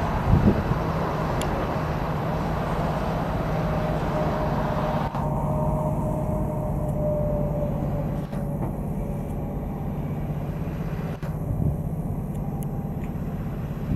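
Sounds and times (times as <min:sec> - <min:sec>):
diesel engine under load: 0:00.0 - 0:13.9
thin steady whine: 0:00.0 - 0:13.9.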